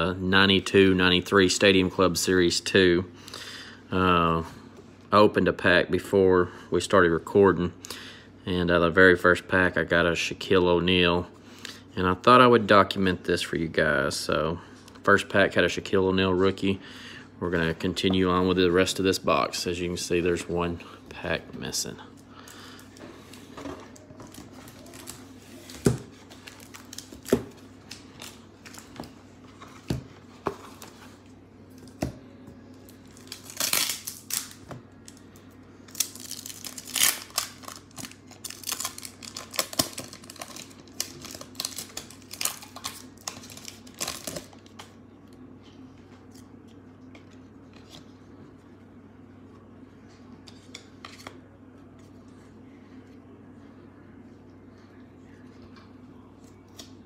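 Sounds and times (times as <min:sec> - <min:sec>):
foil wrapper crinkling and tearing: 0:33.0 - 0:35.2, 0:35.9 - 0:44.6.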